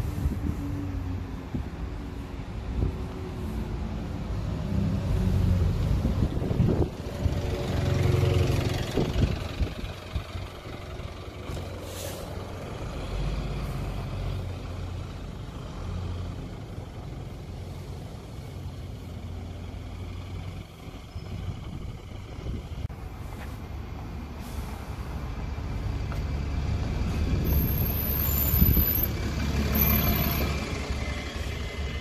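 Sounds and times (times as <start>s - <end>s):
buses idling: 0.0s - 32.0s
diesel bus passing and pulling away: 0.0s - 32.0s
compressed air hiss: 24.4s - 25.2s.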